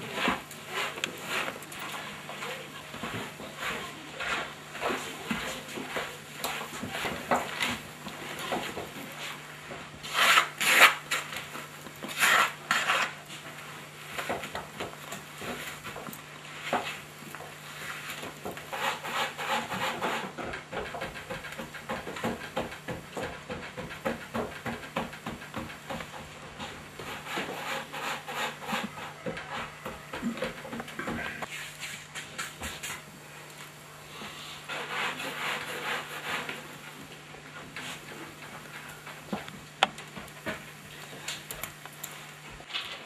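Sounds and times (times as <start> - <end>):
hands kneading and patting dough: 0.0 - 19.5
spatula scraping metal pan: 10.0 - 13.2.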